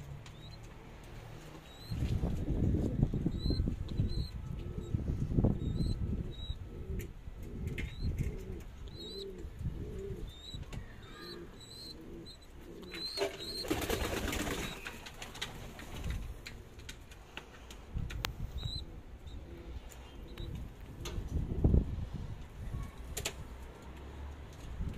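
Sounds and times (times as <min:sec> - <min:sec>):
pigeon chicks peeping: 0:00.0 - 0:21.8
pigeon cooing: 0:03.2 - 0:14.8, 0:18.6 - 0:20.7.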